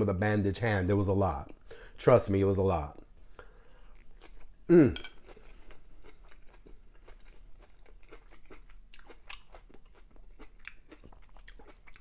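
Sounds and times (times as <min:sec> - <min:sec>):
person chewing food: 0:03.0 - 0:12.0.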